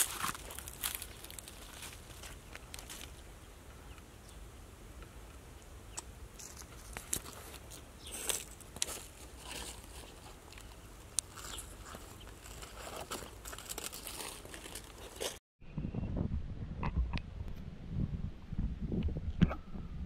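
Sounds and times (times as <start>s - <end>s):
footsteps on dry leaves: 0.0s - 3.2s, 6.4s - 15.4s
low steady rumble: 15.6s - 20.0s.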